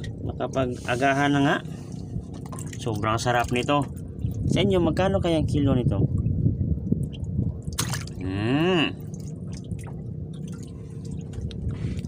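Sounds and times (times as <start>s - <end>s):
steady low rumble: 0.0s - 12.0s
wet squishing and dripping: 1.8s - 4.6s, 6.1s - 8.2s, 9.0s - 12.0s.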